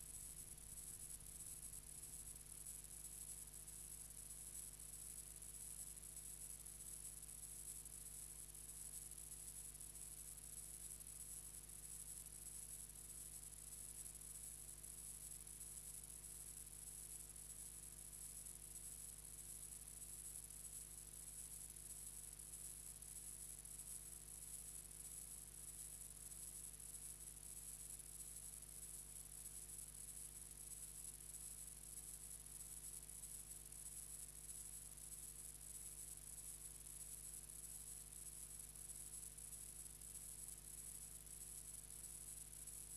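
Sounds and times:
low electrical hum: 0.0s - 7.2s.

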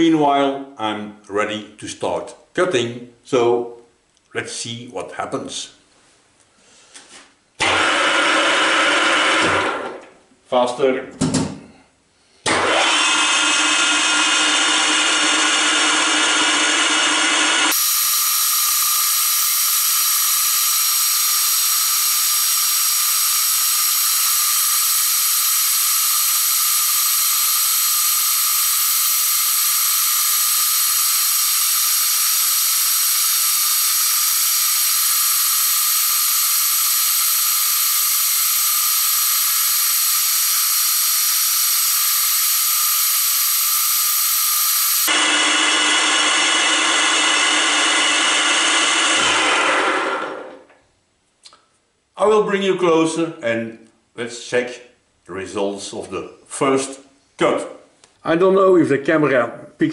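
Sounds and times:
grinding wheel high hiss: 12.9s - 45.2s.

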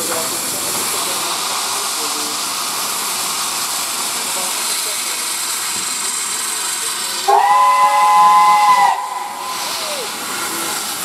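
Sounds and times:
steam hissing: 0.0s - 11.0s
steam whistle blast: 7.3s - 9.7s.

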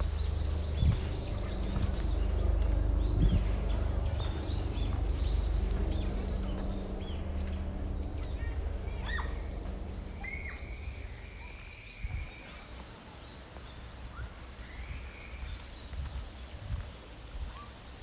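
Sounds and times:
low steady rumble: 0.0s - 12.4s
birds chirping: 0.0s - 18.0s.

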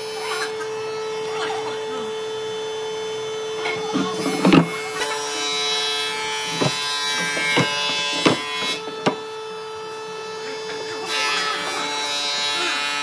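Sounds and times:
sharp wooden knocks: 3.9s - 4.8s, 6.5s - 9.3s
wooden drawers sliding: 3.9s - 4.9s, 6.5s - 9.2s.

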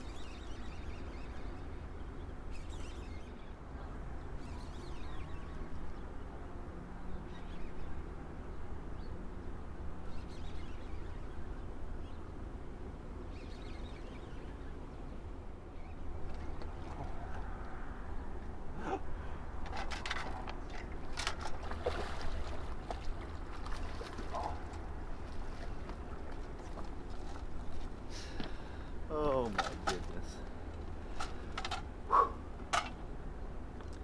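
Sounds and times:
wind: 0.0s - 34.0s
short bird calls: 32.1s - 32.5s.

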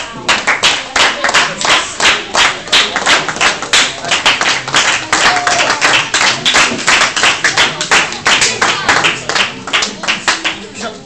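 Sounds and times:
audience clapping in unison: 0.1s - 10.6s.

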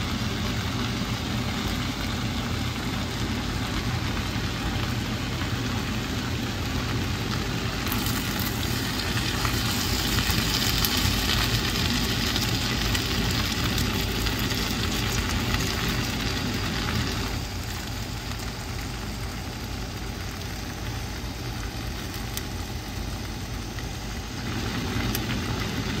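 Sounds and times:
constant low rumble: 0.0s - 26.0s
noodles sizzling in a pan: 0.0s - 26.0s.

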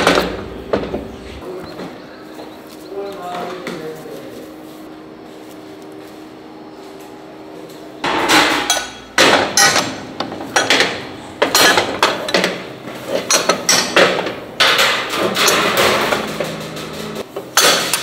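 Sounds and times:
cast-iron molds clanking: 0.0s - 2.6s, 8.0s - 18.0s
steady low hum: 0.0s - 17.4s
sharp metal knocks: 8.0s - 12.7s, 13.3s - 18.0s.

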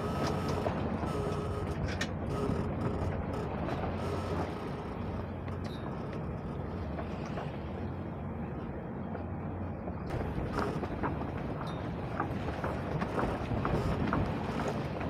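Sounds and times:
wind and water rushing: 0.0s - 15.0s
light knocks and squeaks of gear: 1.9s - 6.5s.

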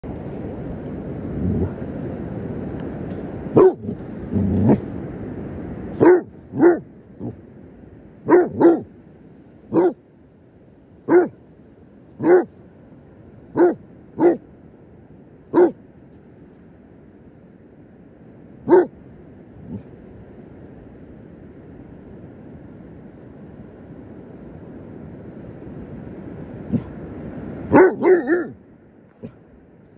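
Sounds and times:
dog barking: 3.5s - 4.8s, 6.0s - 7.4s, 8.3s - 8.9s, 9.7s - 10.0s, 11.1s - 11.4s, 12.2s - 12.5s, 13.5s - 14.4s, 15.5s - 15.8s, 18.6s - 18.9s, 27.7s - 28.6s.

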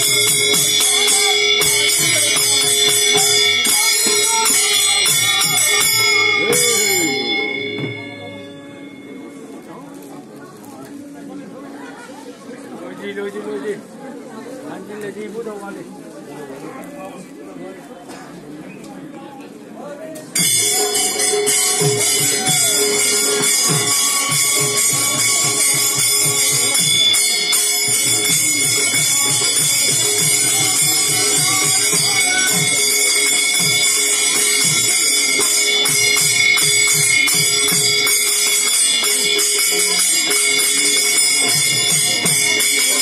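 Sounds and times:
drum beating: 0.0s - 9.2s, 20.4s - 43.0s
held tones: 0.0s - 9.7s, 20.4s - 43.0s
small cymbals jingling: 0.0s - 10.6s, 20.4s - 43.0s.

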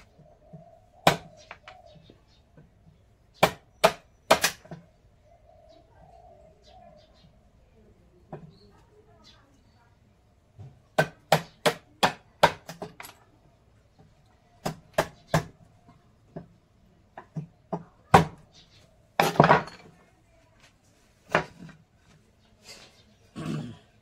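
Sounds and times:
tools knocking on wood: 19.2s - 20.0s.

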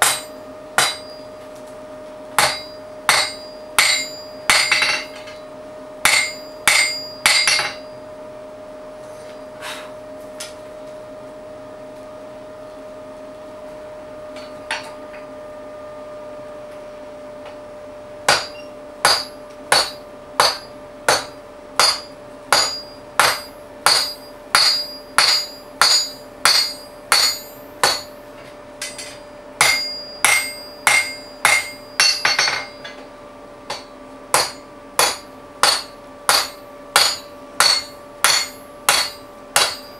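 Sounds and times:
hammer striking metal on anvil: 0.0s - 1.4s, 2.4s - 7.9s, 18.3s - 28.2s, 28.8s - 33.0s, 33.7s - 39.9s.

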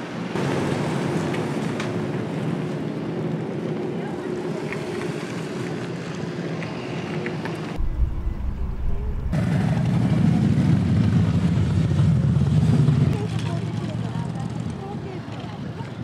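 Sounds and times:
vehicle engine running: 7.8s - 9.6s
short deep rumble: 7.8s - 9.9s.

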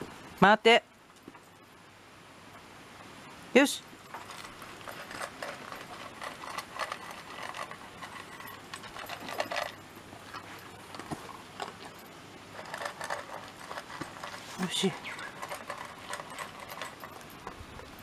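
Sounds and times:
dogs crunching and chewing: 4.0s - 18.0s.

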